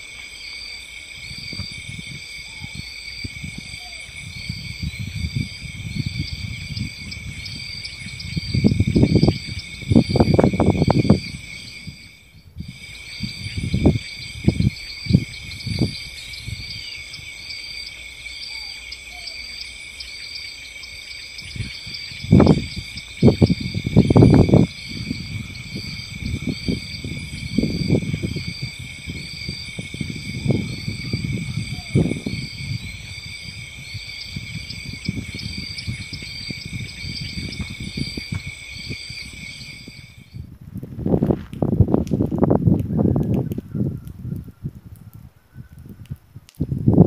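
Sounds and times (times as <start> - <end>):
crickets chirping: 0.0 - 46.2
low rumbling microphone noise: 1.2 - 17.2, 21.4 - 44.2
faint high chirp: 13.1 - 23.2.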